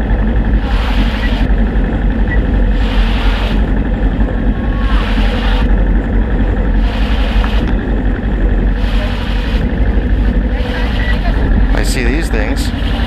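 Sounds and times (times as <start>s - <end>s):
motorcycle engine rumbling: 0.0s - 13.0s.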